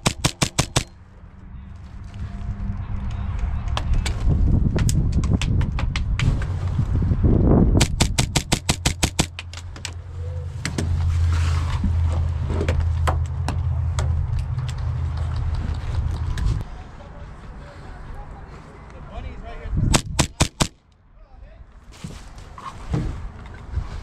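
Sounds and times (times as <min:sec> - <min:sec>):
airsoft gun shots: 0:00.0 - 0:01.0, 0:07.8 - 0:09.3, 0:19.9 - 0:20.8.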